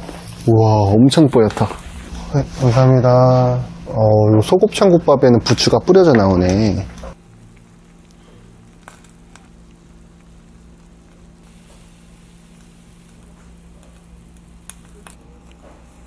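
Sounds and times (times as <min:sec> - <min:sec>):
steady low hum: 0:00.0 - 0:16.0
soup bubbling and sizzling: 0:06.8 - 0:16.0.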